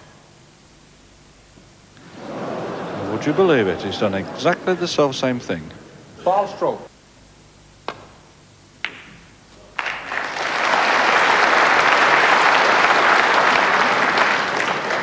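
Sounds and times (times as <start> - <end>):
audience applause: 2.0 - 5.8, 9.7 - 15.0
snooker balls clicking: 7.8 - 10.1.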